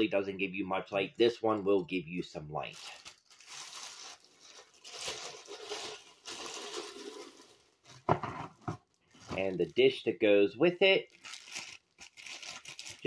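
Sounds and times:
plastic bag crinkling: 2.6 - 10.0, 10.9 - 13.0.

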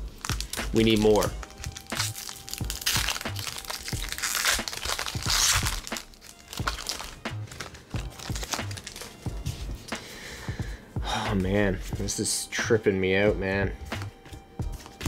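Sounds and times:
foil wrapper crinkling: 0.0 - 9.2
background music with low beat: 0.0 - 15.0.

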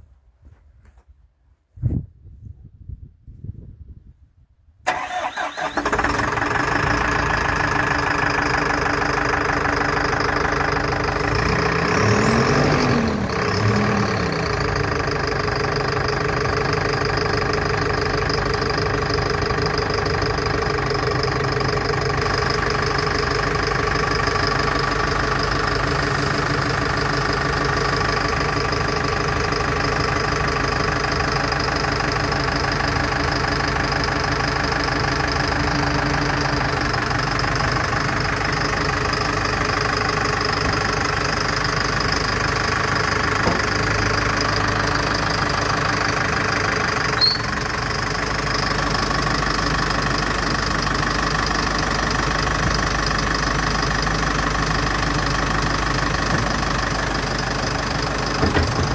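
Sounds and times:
street sweeper engine idling: 5.1 - 58.9
engine revs: 11.2 - 15.1.

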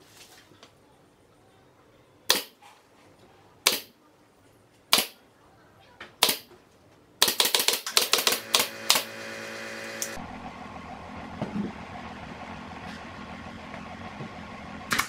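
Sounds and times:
brad nailer firing: 7.2 - 10.2
steady motor hum: 7.9 - 15.0.

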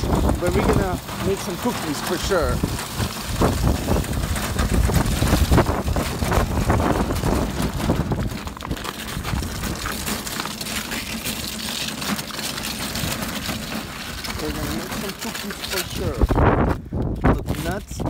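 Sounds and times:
shopping cart rattling: 0.0 - 16.6
cart wheels rumbling on ice: 0.0 - 18.0.

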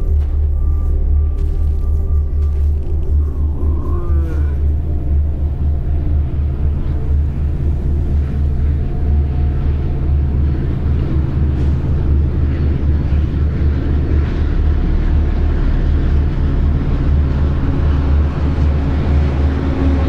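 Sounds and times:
diesel locomotive drone: 0.0 - 20.0.

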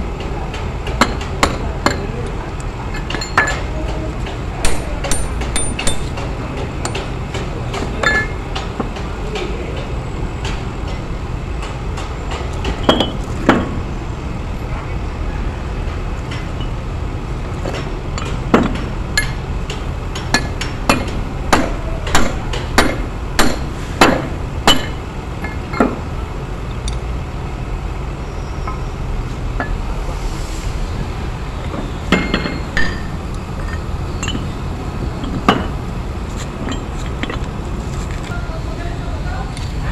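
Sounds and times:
low background drone: 1.6 - 39.9
hammer striking metal: 4.6 - 7.1, 18.2 - 26.0, 32.1 - 34.4.

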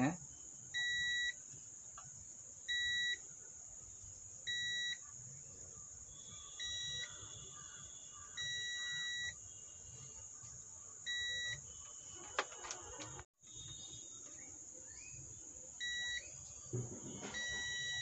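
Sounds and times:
multimeter buzzer beeping: 0.8 - 1.4, 2.7 - 3.2, 4.5 - 5.0, 6.6 - 7.2, 8.4 - 9.4, 11.1 - 14.0, 15.8 - 16.3, 17.2 - 18.0.

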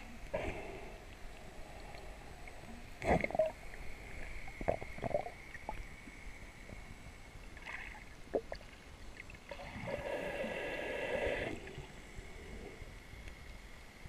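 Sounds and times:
faint high whine: 0.0 - 14.0
underwater water noise: 0.0 - 14.0.

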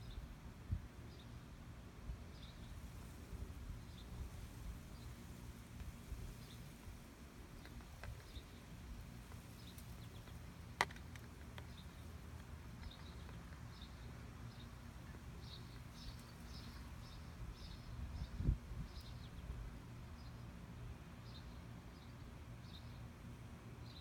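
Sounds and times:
small birds chirping: 3.8 - 20.4
wind on microphone: 17.6 - 19.0.

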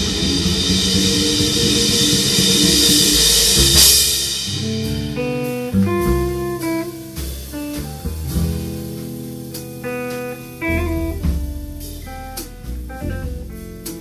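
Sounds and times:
cymbal crash: 0.0 - 7.5
electric guitar line: 0.0 - 14.0
jazz trio playing: 0.0 - 14.0.

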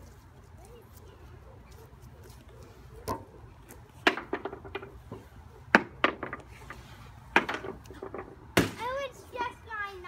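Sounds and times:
trampoline thumps: 7.3 - 9.0.

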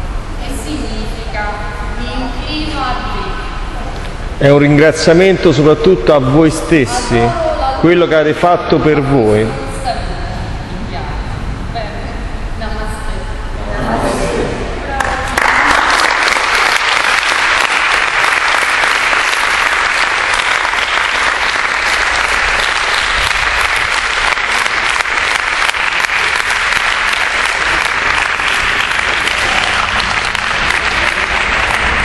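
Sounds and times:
group of people applauding: 15.0 - 32.0.

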